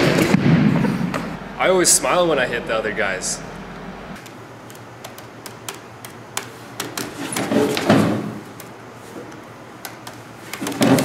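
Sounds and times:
calculator keys clicking: 4.2s - 7.2s.

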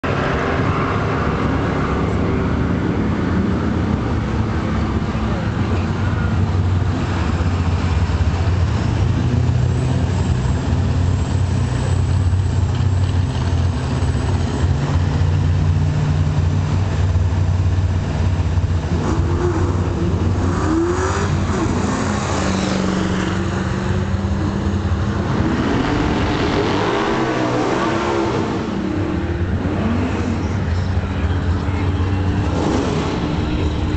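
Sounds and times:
car engine idling loudly: 1.2s - 20.5s, 28.4s - 33.9s.

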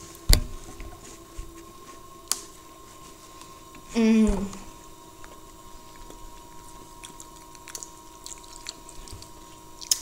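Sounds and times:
faint steady hum: 0.0s - 10.0s
people crunching wafer: 5.9s - 10.0s.

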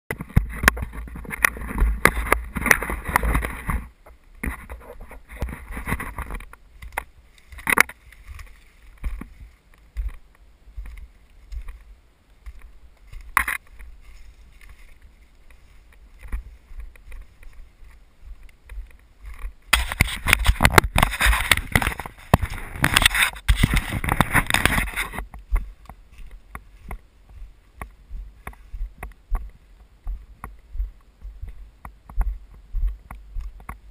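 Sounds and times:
brush rustling: 0.1s - 33.9s
footsteps on leaves: 0.5s - 29.0s
twigs snapping: 5.4s - 11.8s, 18.4s - 27.0s
camera handling noise: 19.7s - 25.4s.

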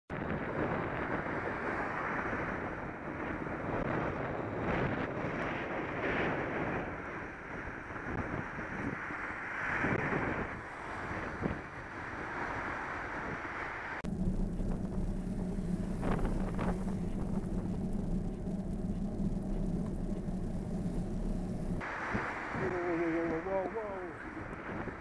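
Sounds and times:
wind rushing over microphone: 0.1s - 25.0s
passing traffic: 7.2s - 25.0s
steady low hum: 14.0s - 23.0s.

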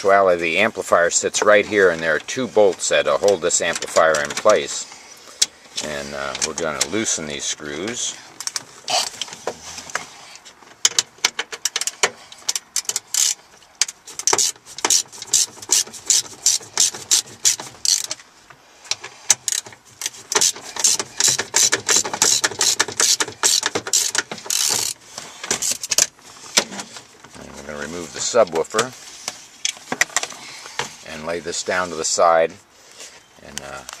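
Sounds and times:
socket ratchet wrench clicking: 12.6s - 18.1s, 19.4s - 25.0s.

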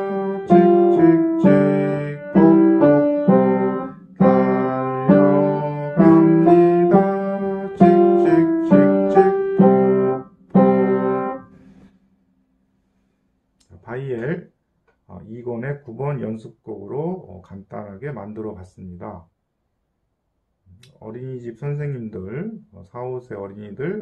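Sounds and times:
piano melody: 0.0s - 11.8s.

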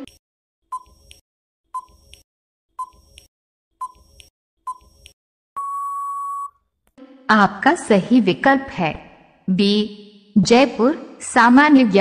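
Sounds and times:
long steady beep: 5.6s - 6.6s
short beeps: 5.6s - 6.6s.

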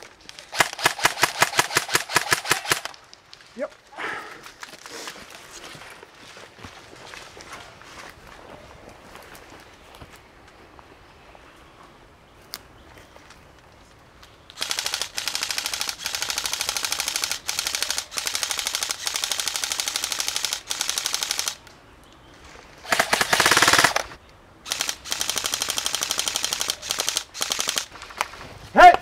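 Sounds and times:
airsoft rifle firing full-auto: 0.5s - 3.0s, 14.6s - 21.6s, 22.9s - 27.9s.

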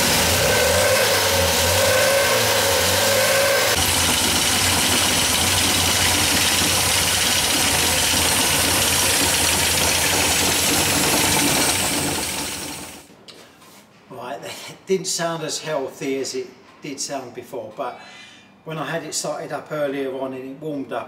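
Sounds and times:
car engine idling roughly: 0.0s - 0.5s, 3.7s - 13.0s.

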